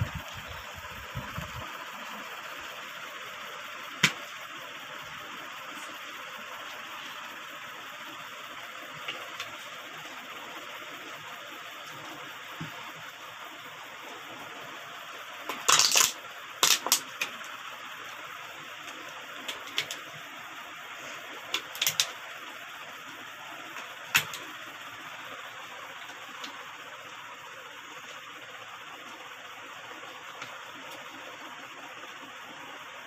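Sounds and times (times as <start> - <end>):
plastic bottle caps clicking: 15.5 - 17.1.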